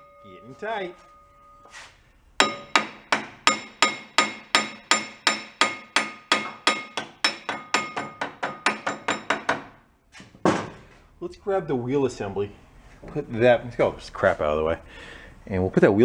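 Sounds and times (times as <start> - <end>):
hammer striking metal: 2.4 - 9.8.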